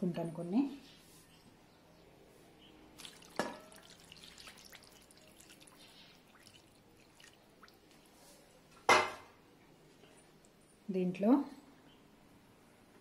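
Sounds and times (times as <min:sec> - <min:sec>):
water pouring and dripping: 0:02.9 - 0:08.2.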